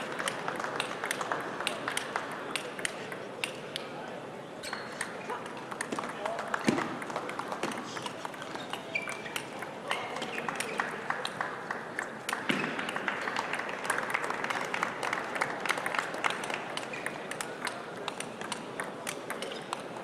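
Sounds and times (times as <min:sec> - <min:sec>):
audience clapping: 0:00.0 - 0:03.0, 0:05.6 - 0:08.7, 0:09.3 - 0:19.8
crowd murmur: 0:00.0 - 0:20.0
table tennis ball clicking: 0:08.0 - 0:10.9.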